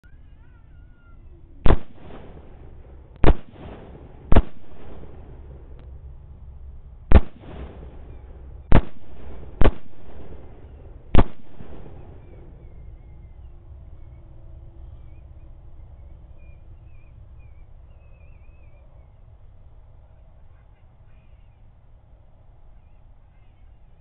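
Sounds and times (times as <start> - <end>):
rifle shots echoing: 1.6 - 5.8, 7.1 - 12.8.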